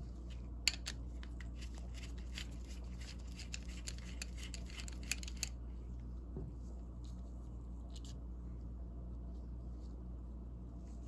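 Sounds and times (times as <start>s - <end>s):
screwdriver metal clicks and scrapes: 0.7s - 5.5s.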